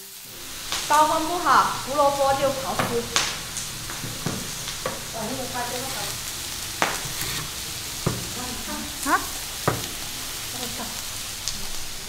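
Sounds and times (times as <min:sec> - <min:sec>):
sharp knocks: 0:02.7 - 0:05.1, 0:06.8 - 0:08.4, 0:09.7 - 0:10.0
carrot rasping on grater: 0:07.0 - 0:07.6.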